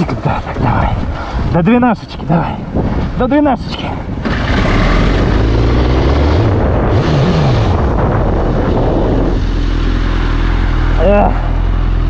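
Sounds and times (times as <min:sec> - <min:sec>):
motorcycle engine revving and idling: 0:04.1 - 0:12.0
rushing noise: 0:04.2 - 0:11.6.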